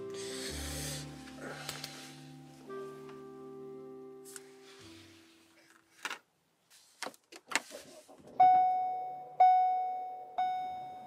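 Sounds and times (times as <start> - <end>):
car warning chime: 8.4 - 11.0.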